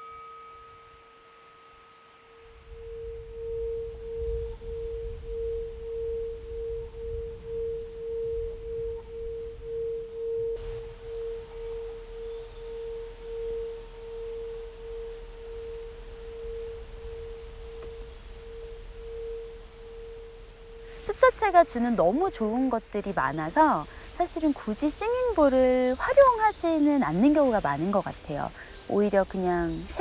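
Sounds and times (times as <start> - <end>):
singing bowl humming: 0.0 - 30.0
low rumble: 2.4 - 24.5.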